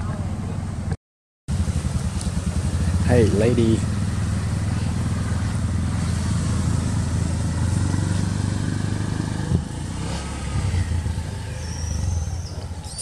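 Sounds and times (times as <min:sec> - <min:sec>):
engine idling: 0:01.5 - 0:09.6.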